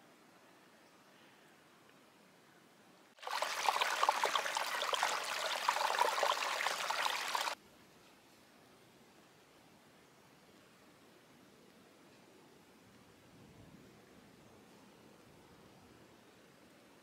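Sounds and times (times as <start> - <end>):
stream water rushing and splashing: 3.2 - 7.6.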